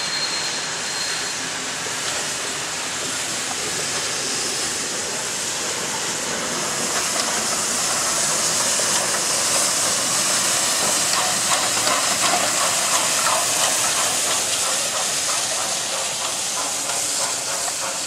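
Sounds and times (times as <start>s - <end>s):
steam locomotive hissing: 0.0s - 18.0s
wheels clattering over rail joints: 5.1s - 18.0s.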